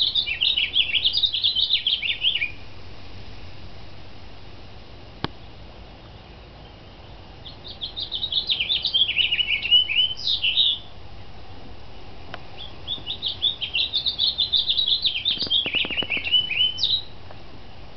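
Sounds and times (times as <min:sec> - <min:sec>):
songbird warbling: 0:00.0 - 0:02.8, 0:05.2 - 0:11.1, 0:11.9 - 0:17.2.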